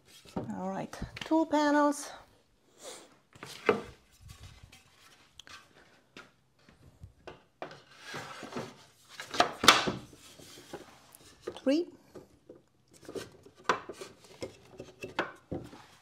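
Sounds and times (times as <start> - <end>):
wood scraping against wood: 7.6 - 9.5.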